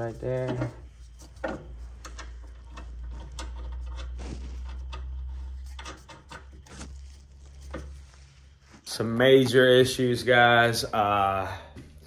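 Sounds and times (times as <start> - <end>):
low steady rumble: 0.0 - 9.2.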